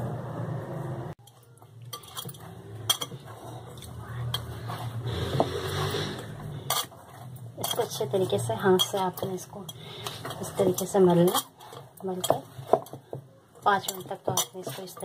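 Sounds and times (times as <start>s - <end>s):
low steady hum: 0.0s - 14.6s.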